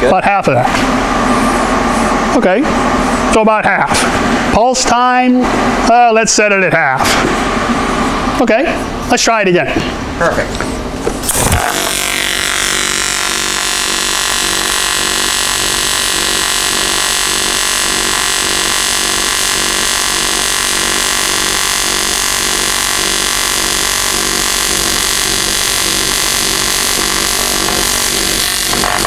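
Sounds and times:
welding arc buzzing: 0:11.2 - 0:29.0.

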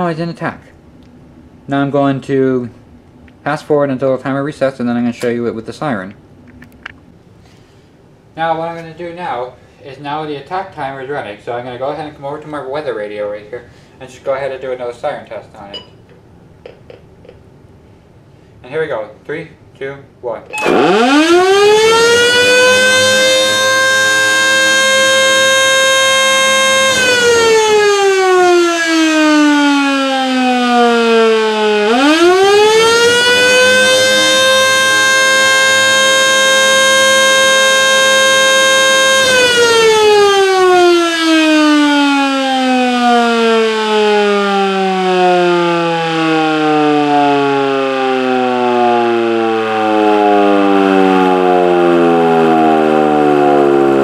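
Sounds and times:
civil defense siren winding up and down: 0:20.5 - 0:54.0.

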